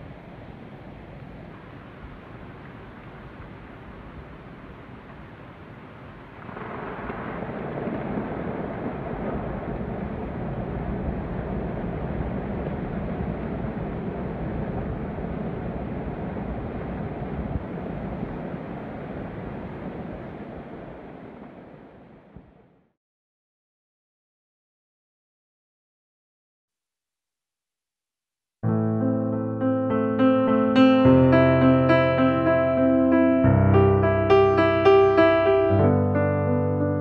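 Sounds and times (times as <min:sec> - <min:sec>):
avalanche rumbling: 0:00.0 - 0:22.6.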